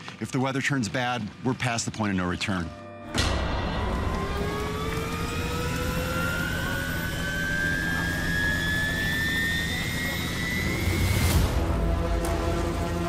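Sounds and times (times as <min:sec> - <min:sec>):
helicopter turbine whine: 0:03.2 - 0:13.0.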